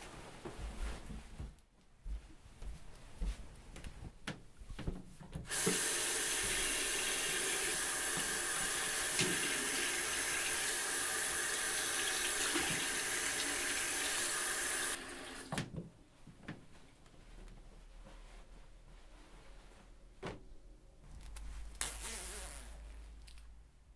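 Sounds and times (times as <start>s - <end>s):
tap running into sink: 5.5s - 6.8s, 8.1s - 9.8s, 12.1s - 13.8s
faint rustling: 16.1s - 21.8s.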